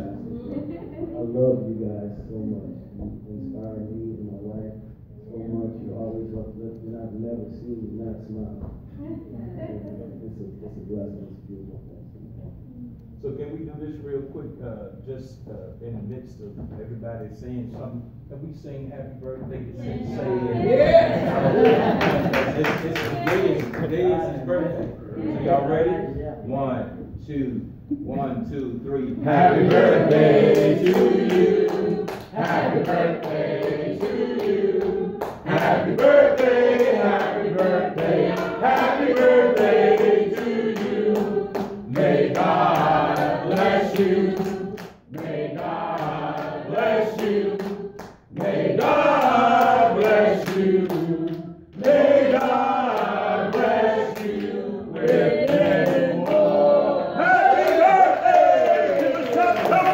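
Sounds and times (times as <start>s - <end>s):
church choir singing: 29.0s - 59.9s.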